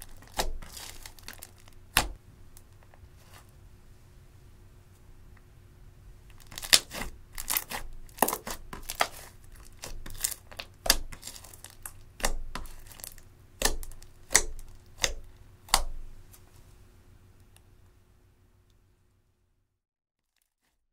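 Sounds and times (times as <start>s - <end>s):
sticky slime snapping and crackling: 0.0s - 2.2s, 6.3s - 16.0s.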